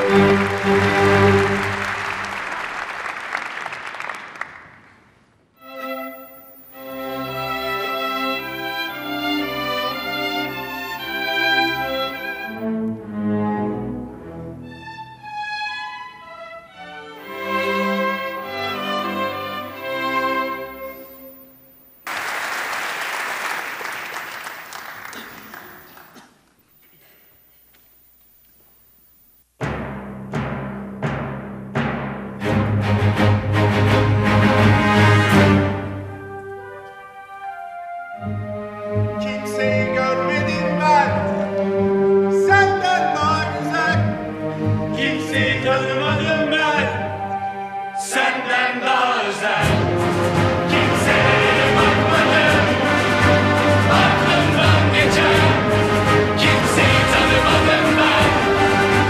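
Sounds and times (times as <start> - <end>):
string orchestra playing: 0.0 - 2.4, 5.6 - 21.4, 32.4 - 48.0, 49.6 - 59.0
audience applause: 0.0 - 5.2, 22.0 - 26.5
orchestral chord: 5.6 - 13.4, 17.1 - 21.7.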